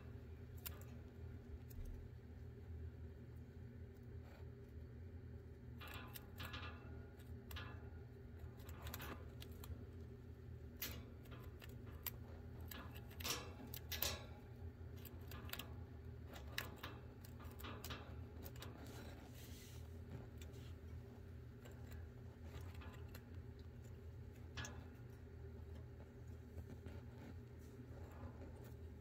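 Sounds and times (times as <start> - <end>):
faint low hum: 0.0 - 29.0
chinchilla gnawing on wood: 5.6 - 19.4, 20.0 - 29.0.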